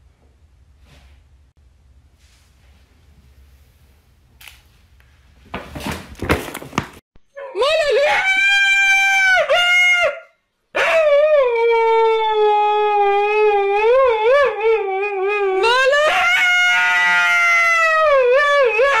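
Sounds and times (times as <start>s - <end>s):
husky howling: 7.4s - 19.0s.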